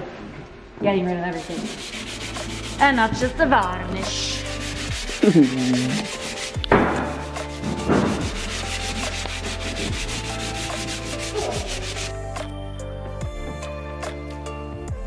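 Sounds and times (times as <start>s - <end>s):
sanding wood back and forth: 1.3s - 12.2s.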